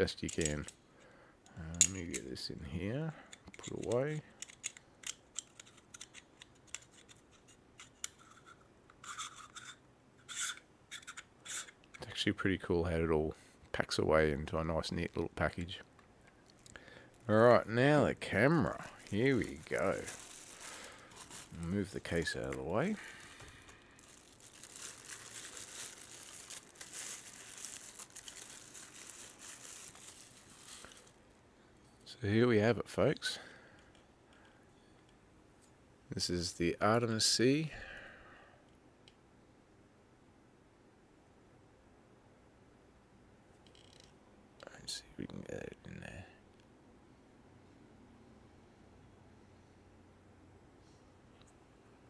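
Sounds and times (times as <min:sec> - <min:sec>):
plastic wrapping crinkling: 0:16.4 - 0:31.4.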